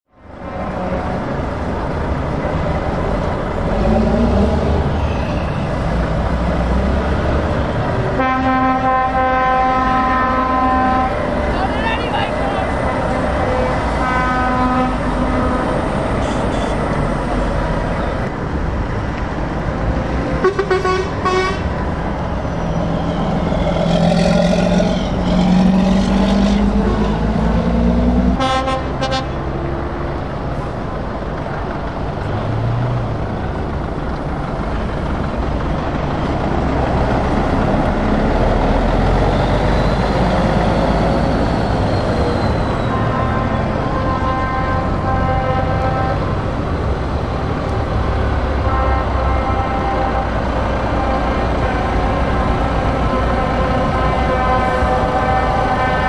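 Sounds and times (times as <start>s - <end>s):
diesel lorry engines: 0.1s - 56.0s
truck horn blasts: 8.1s - 17.0s, 20.4s - 21.8s, 23.2s - 29.5s, 42.5s - 46.4s, 48.5s - 56.0s.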